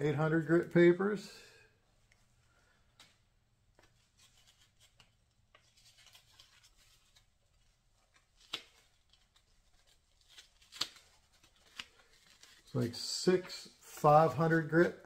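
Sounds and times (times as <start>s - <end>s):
paper discs rustling: 2.9s - 14.6s.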